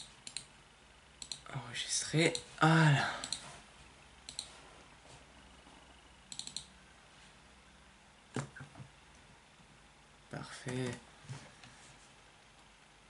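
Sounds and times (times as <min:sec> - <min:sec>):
computer mouse clicking: 0:00.0 - 0:00.5, 0:01.2 - 0:01.4, 0:03.2 - 0:03.4, 0:04.3 - 0:04.5, 0:06.3 - 0:06.7.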